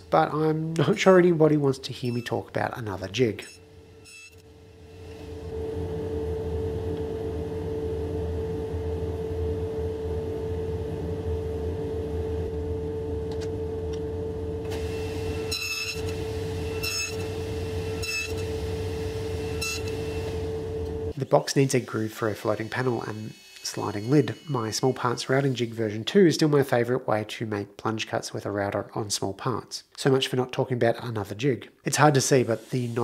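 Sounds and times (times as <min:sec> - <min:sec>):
table saw running: 0:14.7 - 0:25.8.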